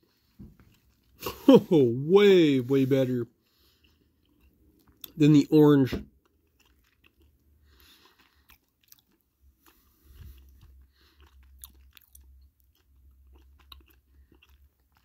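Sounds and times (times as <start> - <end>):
chewing candy mouth clicks: 6.2 - 9.2, 10.6 - 15.0.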